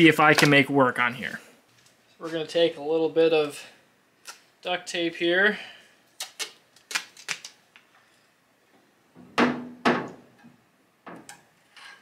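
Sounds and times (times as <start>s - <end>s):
duct tape ripping off roll: 6.2s - 7.6s.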